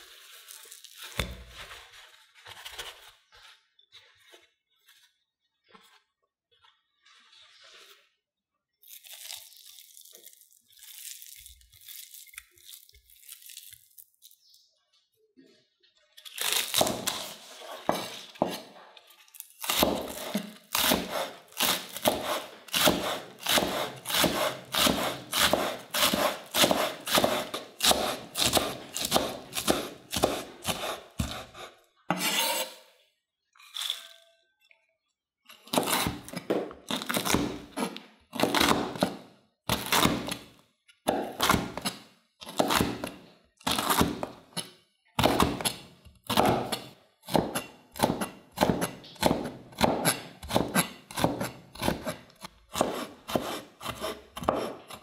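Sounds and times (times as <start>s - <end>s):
cleaver chopping on wooden board: 19.7s - 32.3s, 41.1s - 43.1s, 45.2s - 52.2s, 52.8s - 55.0s.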